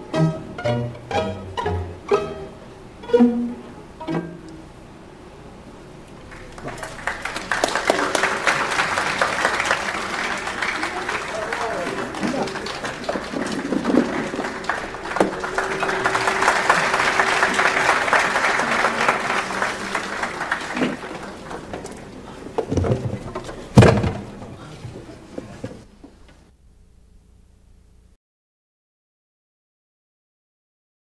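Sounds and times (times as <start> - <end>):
audience applauding: 6.2 - 25.2
heavy thuds: 20.8 - 25.9.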